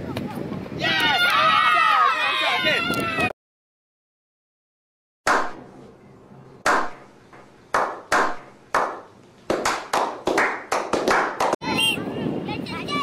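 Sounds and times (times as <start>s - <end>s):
hand claps with echo: 7.7s - 11.6s.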